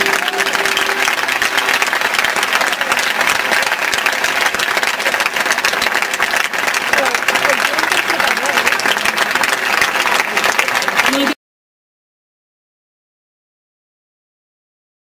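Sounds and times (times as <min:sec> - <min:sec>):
crowd applauding: 0:00.0 - 0:11.4.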